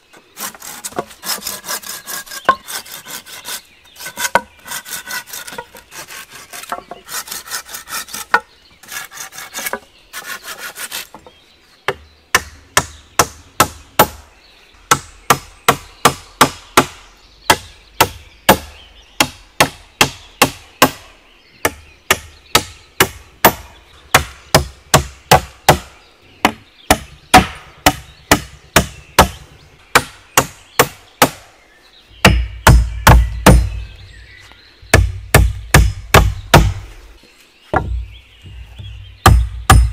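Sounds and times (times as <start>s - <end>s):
hand saw cutting wood: 0.4s - 11.1s
hatchet knocking on wooden poles: 21.6s - 31.4s, 32.2s - 33.8s, 34.9s - 36.8s, 37.7s - 38.1s, 38.8s - 39.9s.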